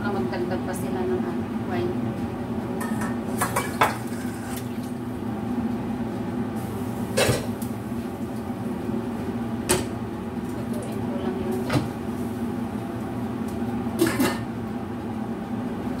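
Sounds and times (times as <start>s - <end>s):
steady low hum: 0.0s - 16.0s
pots and pans clinking: 2.8s - 4.7s, 14.0s - 14.5s.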